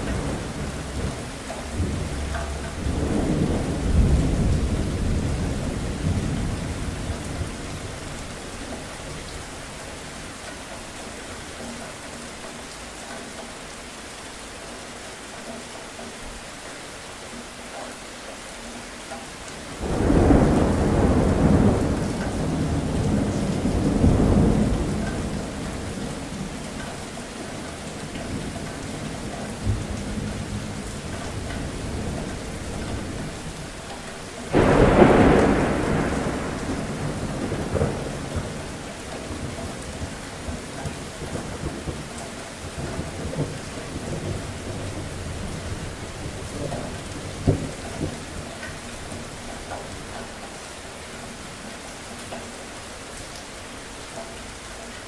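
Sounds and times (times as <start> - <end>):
thunder rumble: 0.0 - 9.3, 19.8 - 26.5, 34.5 - 49.4
steady rain: 0.0 - 55.0.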